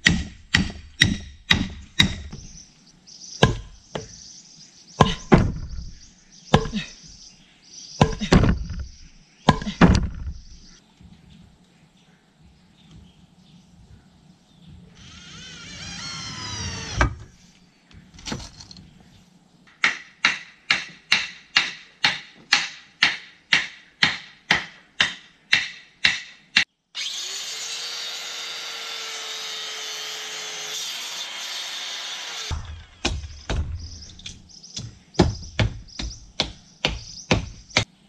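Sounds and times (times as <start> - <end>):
hammer blows on wooden posts: 0.0 - 2.6, 8.0 - 10.4, 19.8 - 26.7, 32.5 - 37.9
sharp knocks: 3.4 - 4.1, 5.0 - 5.9, 8.0 - 10.5, 32.5 - 37.9
circular saw cutting wood: 15.0 - 17.2, 27.0 - 33.4
rising rasp: 15.0 - 17.3.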